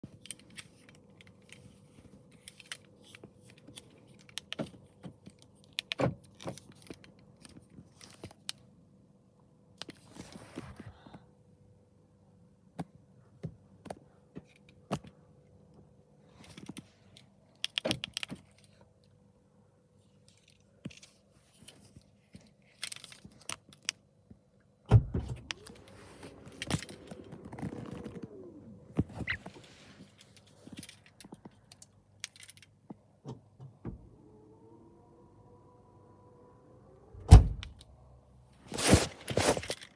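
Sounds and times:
rising and falling whine: 0:25.2 - 0:29.3, 0:33.8 - 0:38.3.

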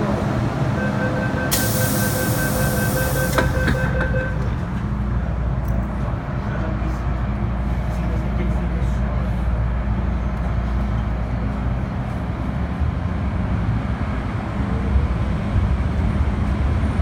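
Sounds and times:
train doors shutting: 0:00.0 - 0:04.9
train humming pulling away: 0:00.0 - 0:08.2
door-closing warning beeps: 0:00.8 - 0:04.5
loud hiss: 0:01.5 - 0:03.6.

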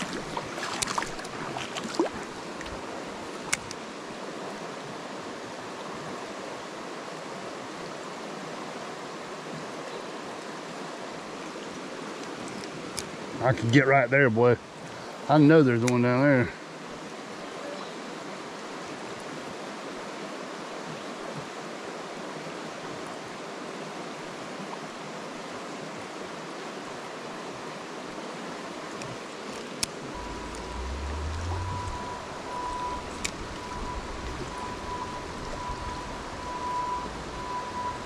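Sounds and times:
creek water rushing: 0:00.0 - 0:38.0
low rumble: 0:30.1 - 0:37.5
thin high tone: 0:30.2 - 0:38.0.

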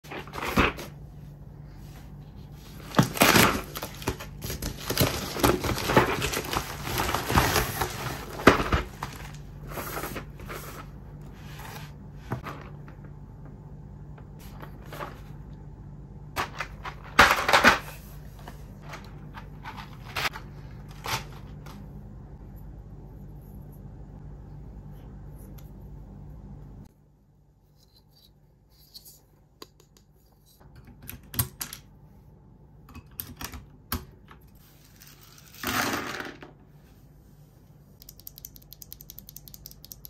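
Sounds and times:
plastic mailer crinkling: 0:02.8 - 0:09.5.

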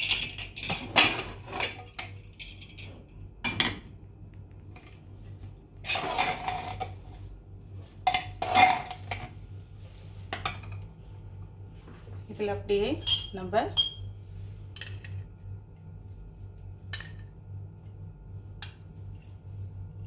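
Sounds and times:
metal ladle scraping a pot: 0:05.8 - 0:07.0.

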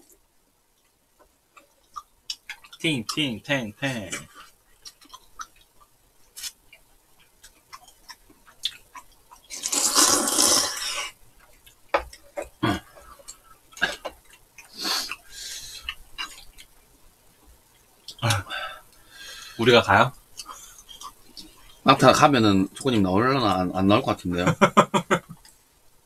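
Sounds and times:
wet chewing clicks: 0:00.8 - 0:03.3, 0:04.7 - 0:10.5
slurping noodles: 0:09.5 - 0:11.1.

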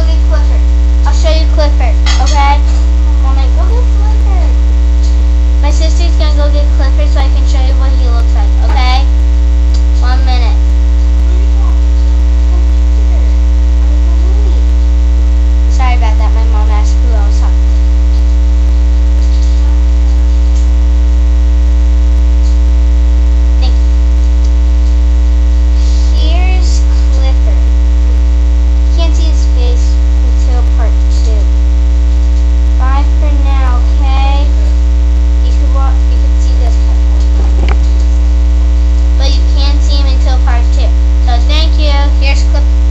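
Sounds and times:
faint voices: 0:00.0 - 0:21.3, 0:32.2 - 0:38.3
electrical mains hum: 0:00.0 - 0:42.9.

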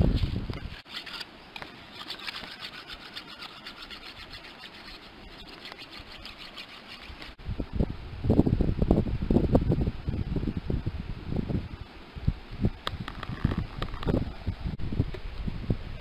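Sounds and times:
knife scraping fish scales: 0:00.2 - 0:07.4.

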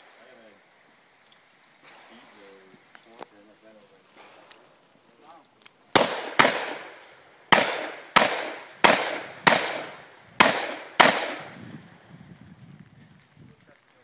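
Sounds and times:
rifle shots echoing: 0:05.9 - 0:11.6.

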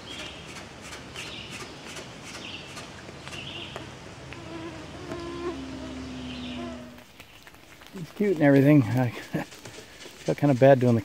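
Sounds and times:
flying insects buzzing: 0:03.3 - 0:10.2.

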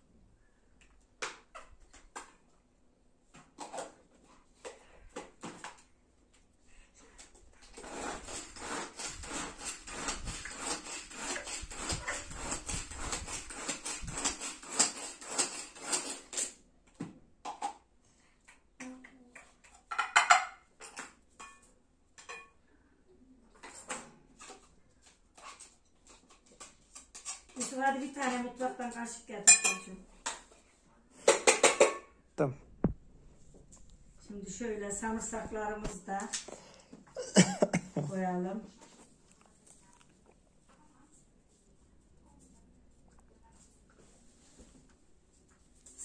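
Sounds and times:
knife scraping tomato: 0:07.6 - 0:16.6, 0:24.4 - 0:27.7.

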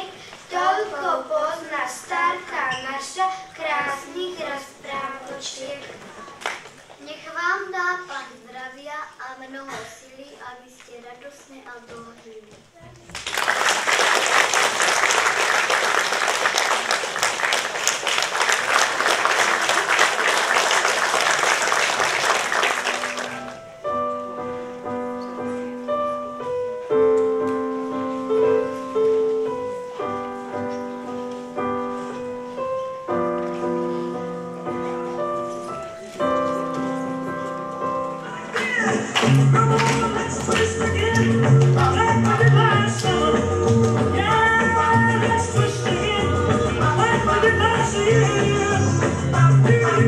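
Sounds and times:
audience applauding: 0:13.1 - 0:23.6, 0:38.4 - 0:43.0
piano playing held chords: 0:21.8 - 0:50.0.

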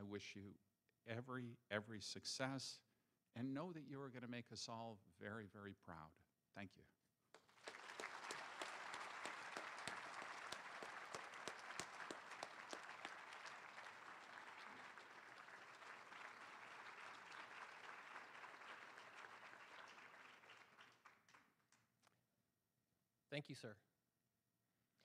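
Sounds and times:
audience applauding: 0:07.4 - 0:21.8.

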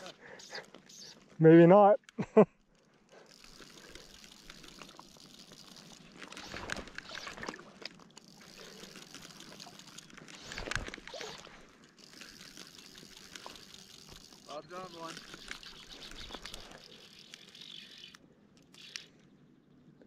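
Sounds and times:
water splashing and trickling: 0:02.8 - 0:18.2.

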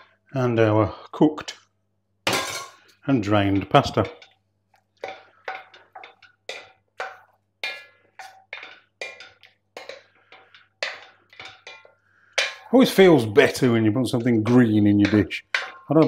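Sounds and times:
wooden spoon knocking on pot: 0:03.3 - 0:04.4, 0:05.0 - 0:16.0.

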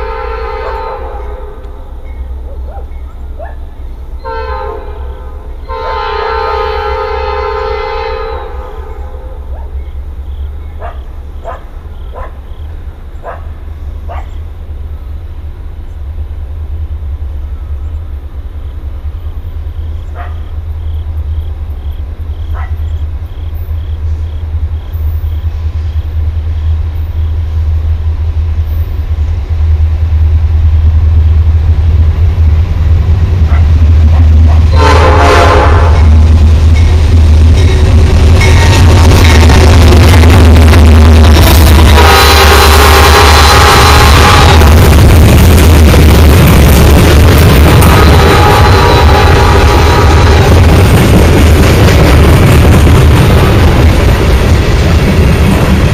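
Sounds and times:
locomotive air horn: 0:00.0 - 0:01.7, 0:04.2 - 0:09.4, 0:34.7 - 0:36.2, 0:41.6 - 0:45.0, 0:47.7 - 0:50.8
diesel engine rumble: 0:00.0 - 0:55.9.

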